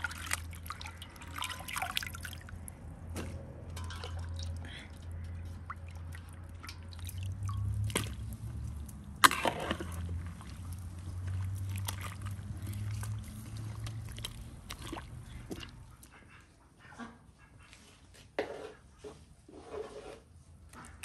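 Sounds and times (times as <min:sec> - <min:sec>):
metal skimmer stirring in pot: 0:00.0 - 0:02.6, 0:03.7 - 0:15.8
water sloshing and dripping: 0:00.0 - 0:17.2.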